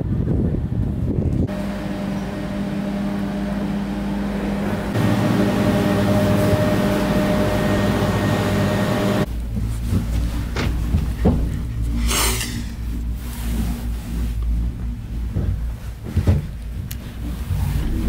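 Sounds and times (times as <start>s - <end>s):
vehicle engine running: 1.4s - 12.0s.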